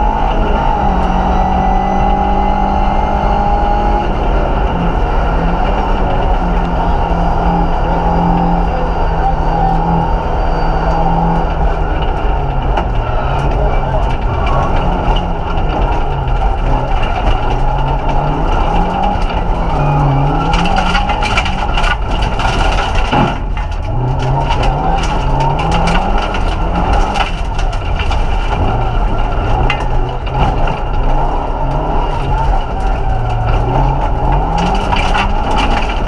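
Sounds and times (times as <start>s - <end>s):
car engine revving through gears: 0.0s - 36.0s
stones hitting car underside: 12.2s - 36.0s.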